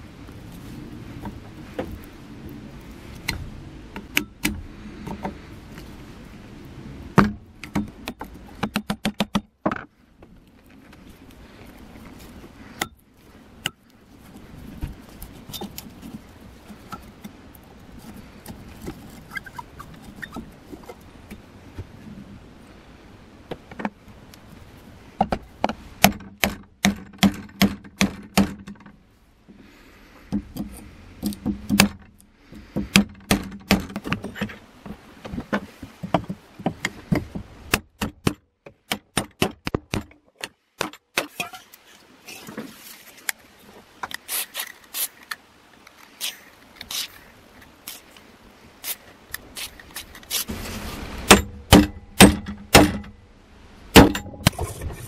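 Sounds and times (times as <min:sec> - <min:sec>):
low steady noise: 0:00.0 - 0:55.0
hammer striking steel punch: 0:51.3 - 0:53.1.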